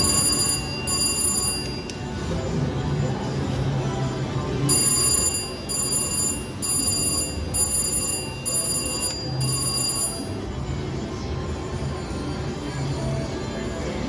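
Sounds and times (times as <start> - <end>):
bell-like electronic chime: 0.0 - 1.9.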